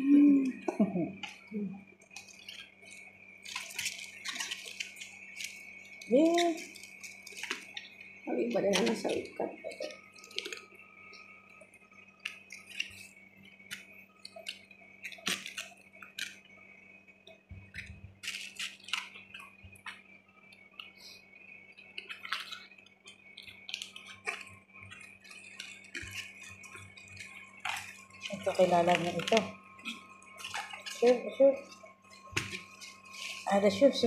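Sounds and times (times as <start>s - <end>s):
faint steady hum: 0.0s - 34.0s
cabbage leaves snapping: 3.4s - 7.8s, 8.6s - 10.6s, 13.6s - 16.4s, 17.8s - 20.0s, 23.3s - 31.3s.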